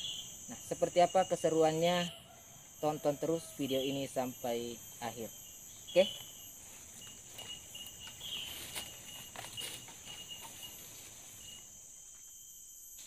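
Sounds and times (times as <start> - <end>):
high-pitched insect drone: 0.0 - 13.0
faint rustles: 6.5 - 11.7.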